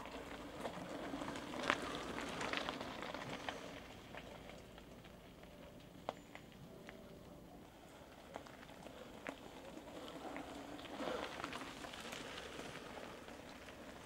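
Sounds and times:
bike tyres crunching on gravel: 0.0s - 5.5s, 7.9s - 14.0s.

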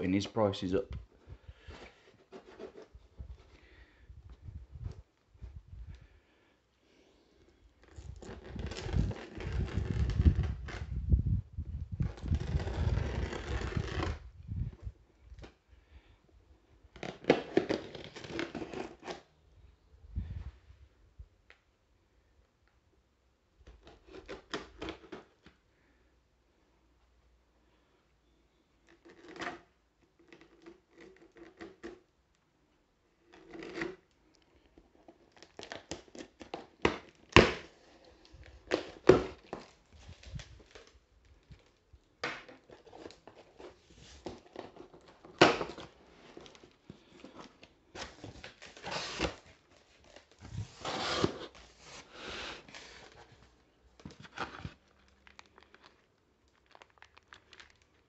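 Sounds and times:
cardboard flaps tearing: 7.9s - 10.9s, 12.0s - 14.3s, 17.0s - 19.2s, 35.3s - 37.8s, 41.6s - 53.3s
knife slitting packing tape: 12.2s - 14.2s, 17.0s - 19.2s.

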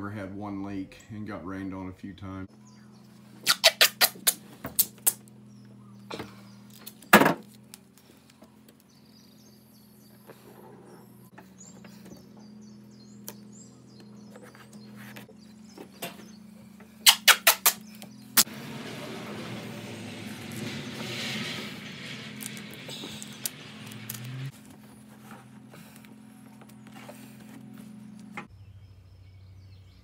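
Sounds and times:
tape ripping off roll: 3.4s - 5.2s, 17.0s - 24.9s.

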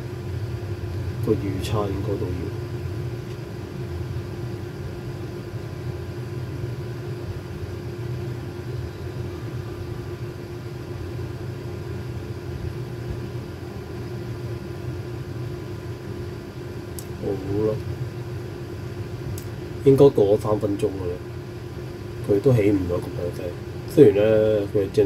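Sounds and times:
steady mechanical hum: 0.0s - 25.0s.

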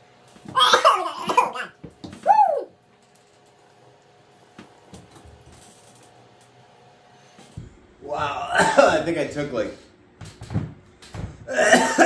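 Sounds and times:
man coughing: 0.7s - 1.7s, 8.4s - 9.0s, 11.5s - 12.0s.

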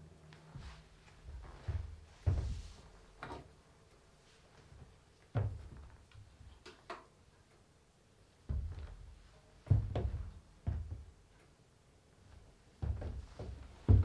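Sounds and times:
dull wooden thuds: 1.3s - 2.7s, 8.5s - 11.1s, 12.8s - 14.0s.

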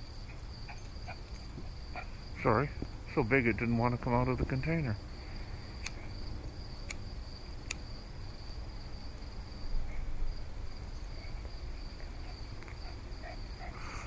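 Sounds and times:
crickets chirring: 0.0s - 14.0s
lighter wheel clicks: 5.8s - 6.0s, 7.6s - 7.8s.

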